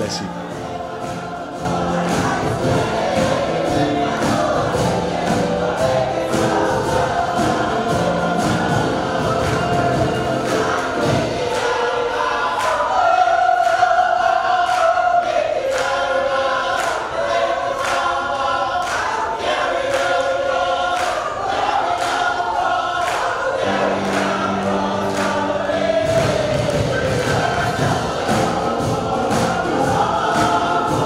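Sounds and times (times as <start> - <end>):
steady beat: 0.0 - 11.6, 24.0 - 31.0
gospel choir singing: 0.0 - 31.0.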